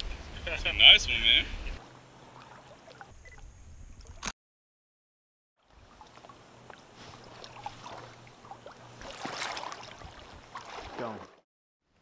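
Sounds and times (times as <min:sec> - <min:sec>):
water trickling and splashing: 0:01.8 - 0:04.3, 0:05.6 - 0:11.4.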